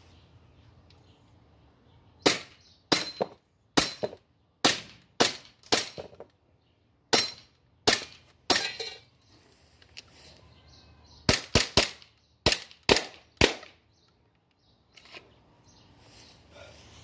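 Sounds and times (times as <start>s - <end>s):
airsoft pistol shots: 11.3s - 13.8s.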